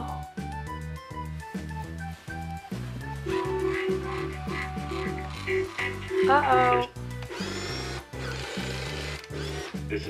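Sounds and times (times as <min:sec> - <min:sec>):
electronic music with repeating notes: 0:00.0 - 0:07.2.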